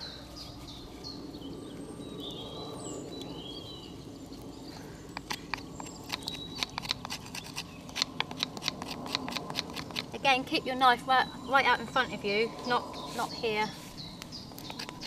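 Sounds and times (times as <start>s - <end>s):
knife scraping bark off stick: 5.1s - 10.2s, 13.0s - 15.0s.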